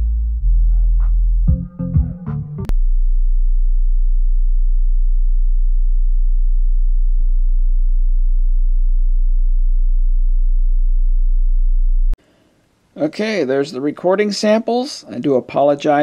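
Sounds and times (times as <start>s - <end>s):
subwoofer low test tone: 0.0s - 12.2s.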